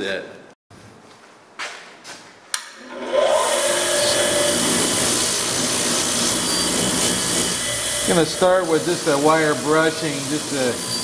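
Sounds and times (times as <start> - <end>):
bench grinder motor whine: 2.8 - 11.0.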